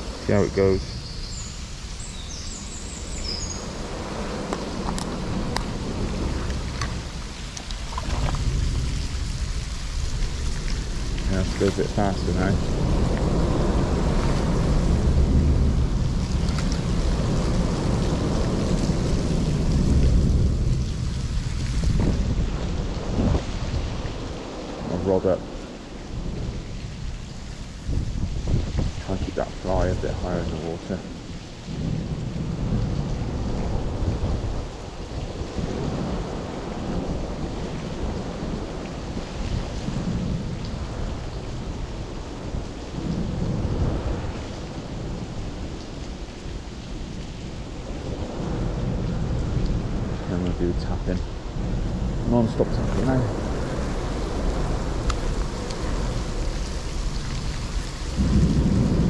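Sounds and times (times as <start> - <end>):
deep rumble: 0.0 - 46.2, 47.4 - 59.0
heavy rain rushing: 0.0 - 59.0
wind buffeting microphone: 0.0 - 59.0.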